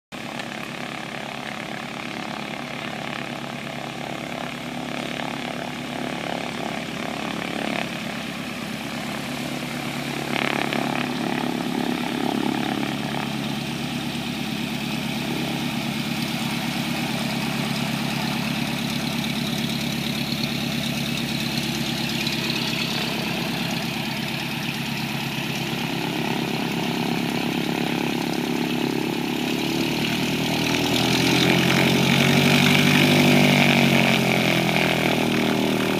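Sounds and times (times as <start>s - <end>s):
small plane engine and propeller: 0.1s - 35.9s.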